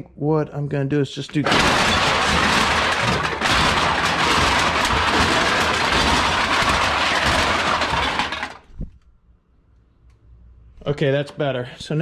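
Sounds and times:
empty cans clattering: 0:01.5 - 0:08.6.

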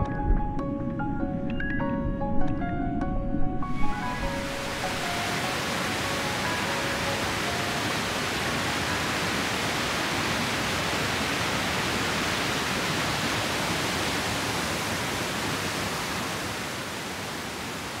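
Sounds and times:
waterfall rushing over rocks: 0:03.9 - 0:18.0.

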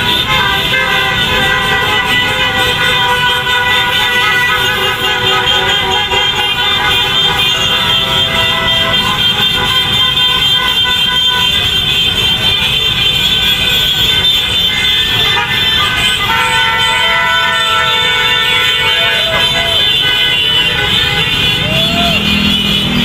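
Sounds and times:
many horns sounding: 0:00.0 - 0:23.0
scooters and motorcycles passing: 0:18.4 - 0:23.0.

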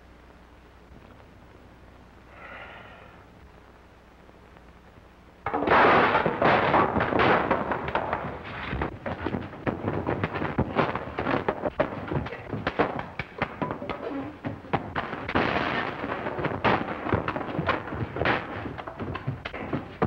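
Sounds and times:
crashing noise: 0:05.4 - 0:20.0
thumps and bangs of scuffle: 0:05.5 - 0:20.0.

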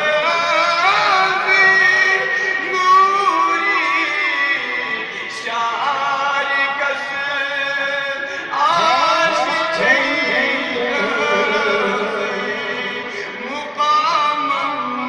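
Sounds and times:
men chanting together: 0:08.7 - 0:13.2.

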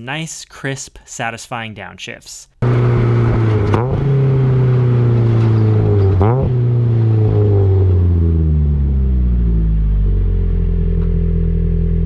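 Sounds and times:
car engine revs falling: 0:02.6 - 0:12.0
engine throttle blips: 0:02.6 - 0:12.0.

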